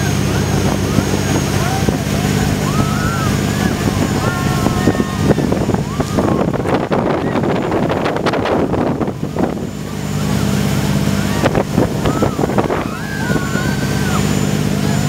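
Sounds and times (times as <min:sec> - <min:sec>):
speedboat engine running: 0:00.0 - 0:15.0
wind buffeting microphone: 0:00.0 - 0:15.0
people calling out: 0:00.5 - 0:07.5, 0:10.3 - 0:15.0.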